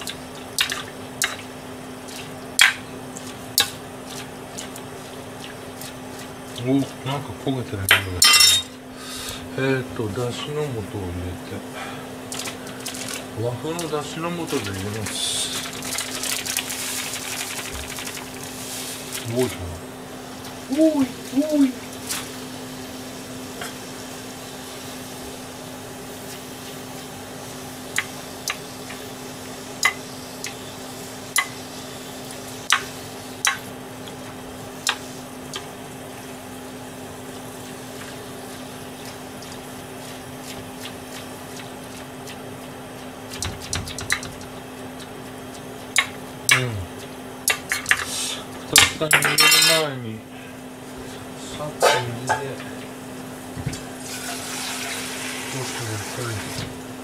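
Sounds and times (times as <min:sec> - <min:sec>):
cabbage simmering with pops: 0:14.5 - 0:19.4, 0:21.9 - 0:48.1.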